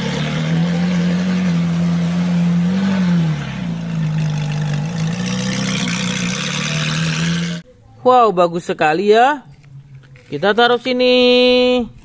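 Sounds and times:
car engine at low revs: 0.0s - 7.6s.

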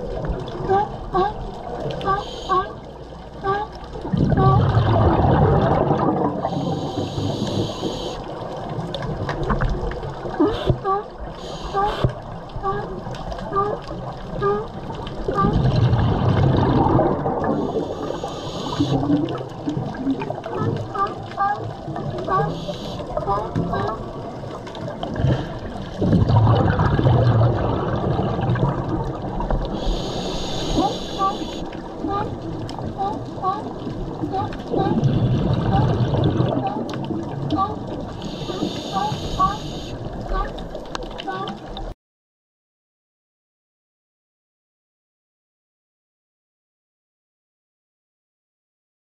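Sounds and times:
exhaled bubbles gurgling: 0.0s - 41.9s
regulator inhalation hiss: 6.5s - 8.2s, 11.4s - 12.0s, 17.8s - 19.0s, 29.8s - 31.7s.

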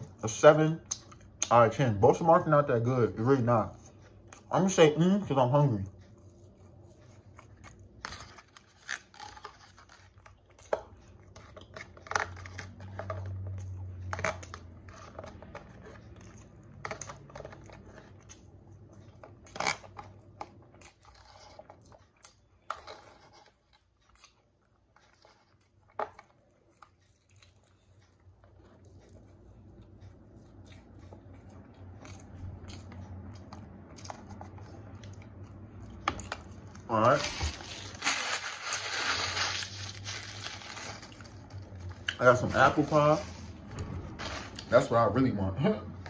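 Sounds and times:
chewing: 5.9s - 42.3s.

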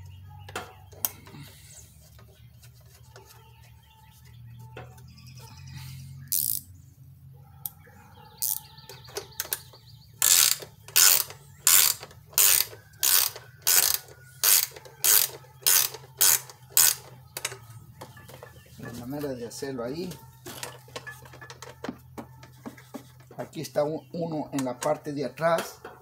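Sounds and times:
ratchet wrench clicking: 6.2s - 6.7s, 8.4s - 8.6s, 9.2s - 17.6s.

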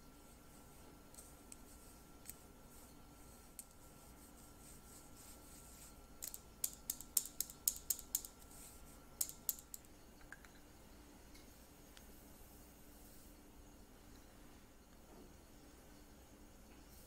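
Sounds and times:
metal sieve tapping clicks: 6.2s - 8.4s, 9.2s - 10.5s.

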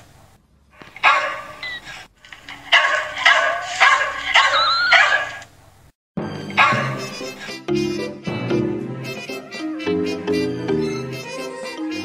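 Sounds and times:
dog yelping and whining: 0.9s - 2.1s, 2.7s - 5.4s.

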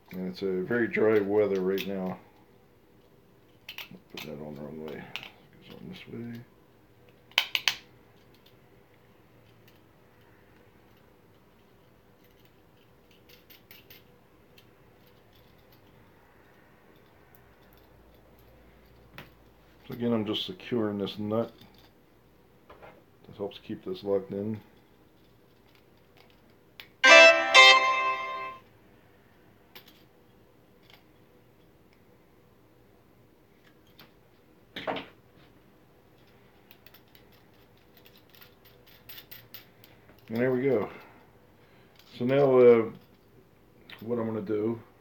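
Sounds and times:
faint metal hardware clicks: 1.1s - 20.0s, 36.1s - 41.1s
two-note electronic chime: 27.0s - 28.6s.

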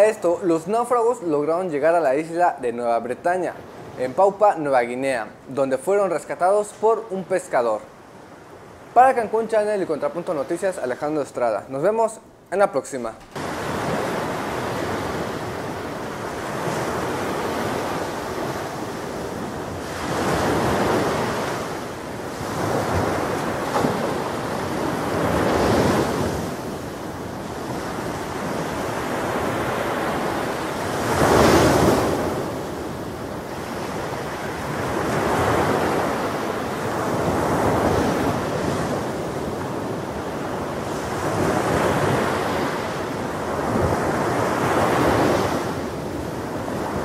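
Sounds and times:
ocean waves washing in: 0.0s - 47.0s
rush of wind: 13.3s - 47.0s.

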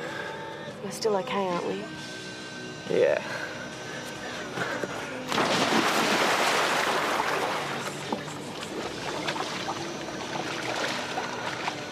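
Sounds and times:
water splashing and rushing: 5.3s - 11.9s.

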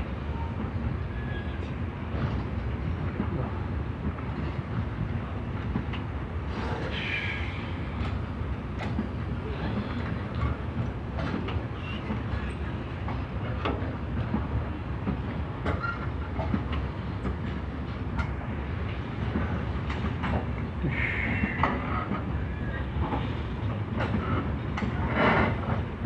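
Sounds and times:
freight train rumbling: 0.0s - 26.0s.

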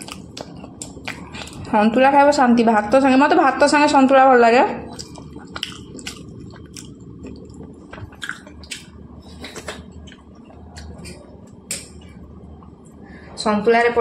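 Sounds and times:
person chewing: 0.0s - 1.7s, 4.9s - 12.9s
steady low hum: 0.0s - 14.0s.

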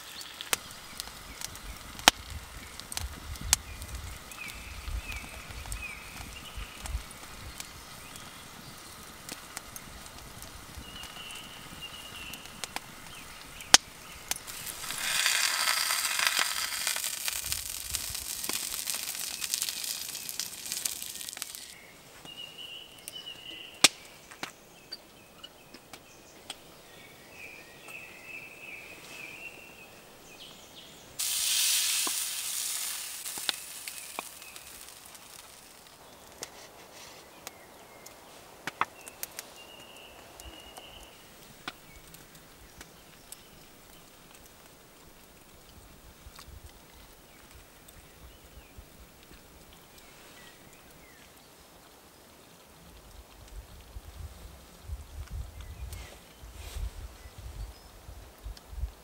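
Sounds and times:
wood fire crackling: 0.0s - 59.0s
hissing: 3.8s - 21.8s, 31.2s - 36.0s.

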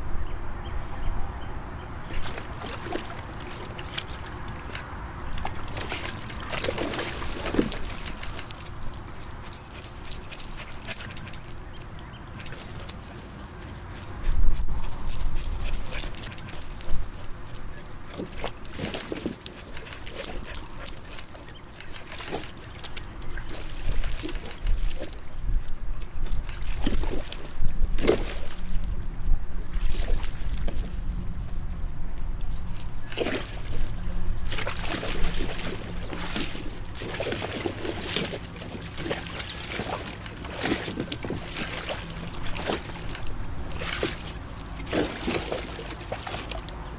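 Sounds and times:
water splashing: 2.2s - 14.2s, 33.1s - 46.7s
collar tags jangling: 2.9s - 46.9s.

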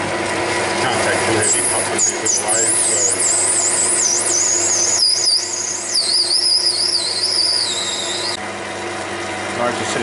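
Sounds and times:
lathe humming: 0.0s - 10.0s
high wavering cutting squeal: 1.2s - 8.4s.

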